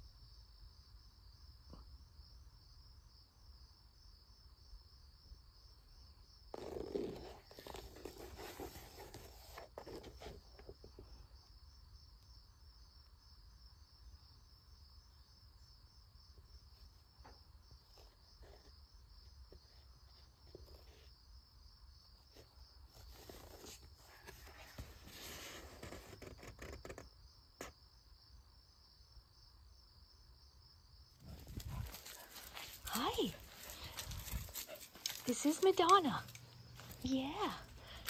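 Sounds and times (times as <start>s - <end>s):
book pages rustling: 6.6s - 10.4s.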